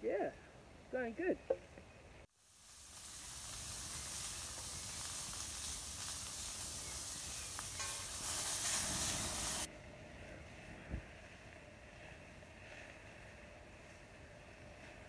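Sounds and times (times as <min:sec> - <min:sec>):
meatballs sizzling in a pan: 0:02.3 - 0:09.7.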